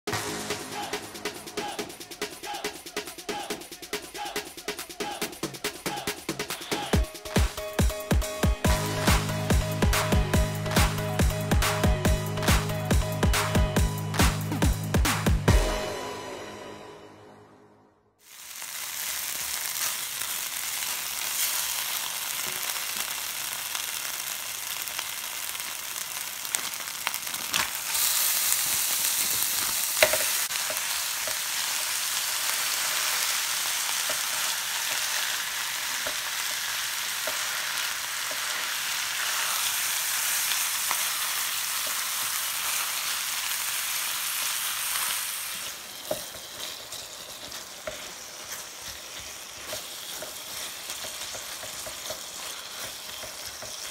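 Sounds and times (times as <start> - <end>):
meat sizzling in a pan: 18.2 - 53.9
spatula stirring meat: 30.0 - 43.1, 44.3 - 53.9.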